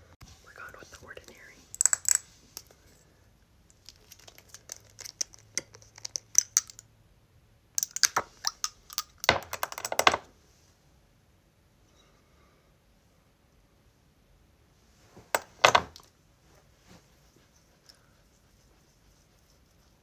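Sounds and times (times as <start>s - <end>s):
nails tapping on glass bottle: 4.3s - 6.8s, 7.8s - 10.2s.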